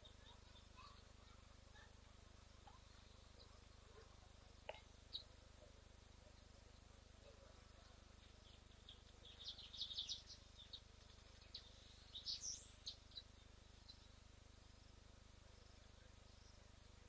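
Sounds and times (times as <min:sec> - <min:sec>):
faint steady hiss: 0:00.0 - 0:17.0
birds chirping: 0:02.6 - 0:14.8.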